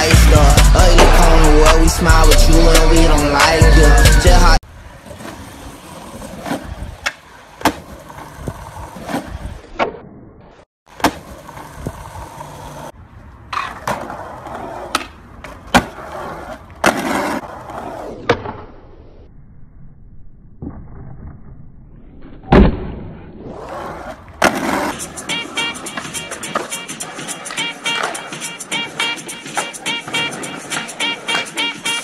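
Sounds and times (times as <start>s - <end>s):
skateboard wheels rolling on pavement: 0.0s - 10.2s, 10.9s - 19.1s, 21.5s - 32.0s
skateboard clacking on ground: 13.5s - 17.4s, 24.4s - 32.0s.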